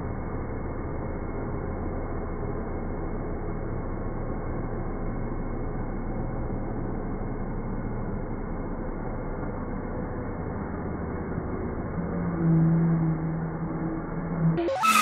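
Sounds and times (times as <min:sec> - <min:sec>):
car engine droning at steady revs: 0:00.0 - 0:15.0
tires spinning on road: 0:11.0 - 0:15.0.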